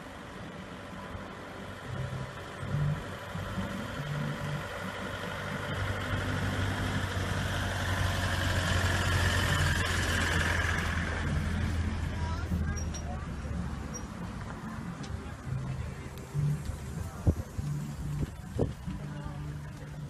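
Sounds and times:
electric vehicle hum and whine: 0.0s - 20.0s.

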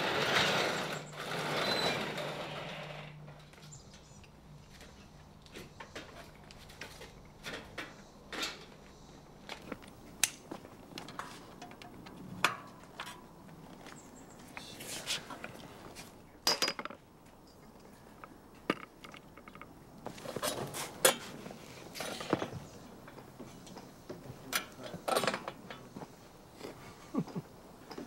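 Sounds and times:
bicycle metallic clicks and clinks: 9.5s - 13.2s.

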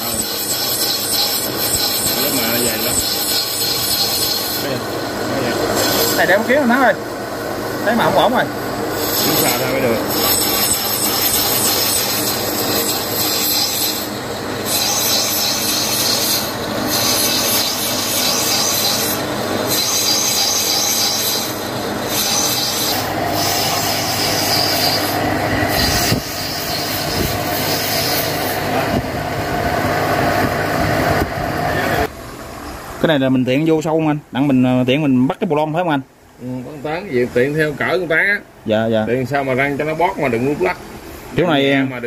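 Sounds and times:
lathe tool squealing on steel: 0.0s - 6.9s, 8.9s - 28.9s.

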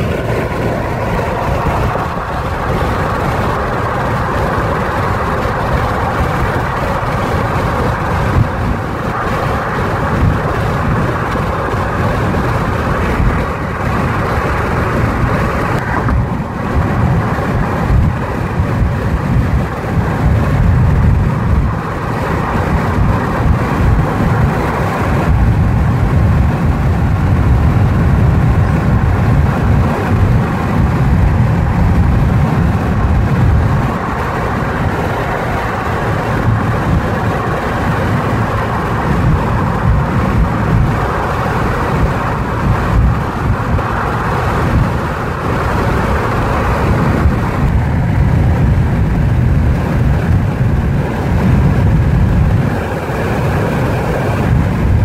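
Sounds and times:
car road and wind noise: 0.0s - 55.0s.

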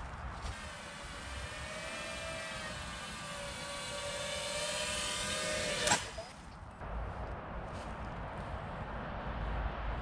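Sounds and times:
drone motors whining: 0.4s - 6.4s.

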